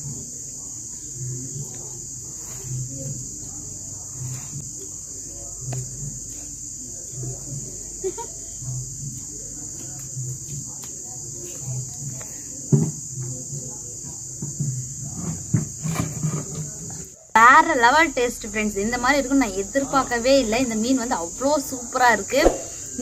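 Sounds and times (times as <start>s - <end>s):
crickets chirping: 0.0s - 23.0s
small knocks and clatters: 12.0s - 17.1s.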